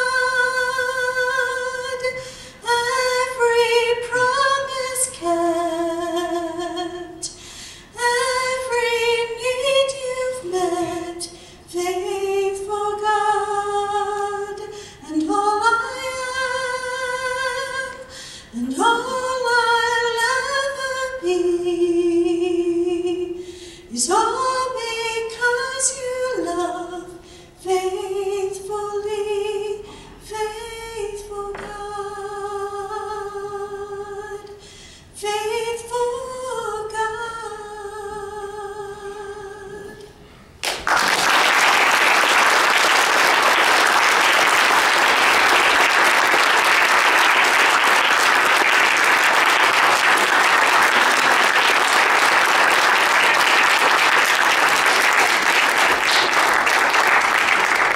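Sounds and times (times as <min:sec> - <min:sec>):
woman singing: 0:00.0 - 0:34.6, 0:35.2 - 0:40.1
audience applause: 0:40.6 - 0:57.9.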